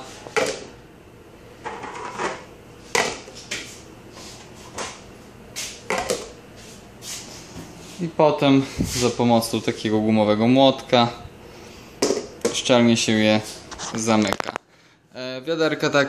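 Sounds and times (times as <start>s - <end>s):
plastic lids knocking on pails: 5.9s - 6.4s, 12.0s - 12.6s.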